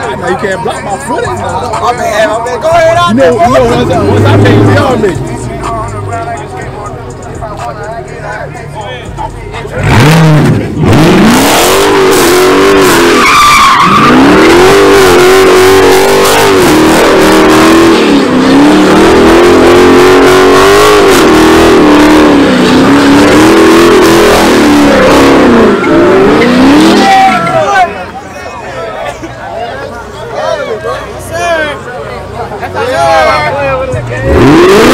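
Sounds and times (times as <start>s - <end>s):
car engine revving hard: 3.1s - 6.2s, 9.7s - 27.6s, 34.1s - 34.9s
tyres spinning and squealing: 9.4s - 34.9s.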